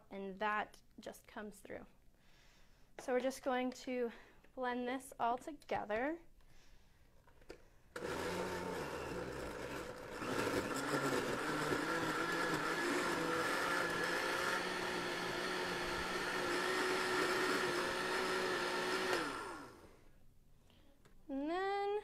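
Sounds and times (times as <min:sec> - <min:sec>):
blender running: 0:08.0 - 0:20.0.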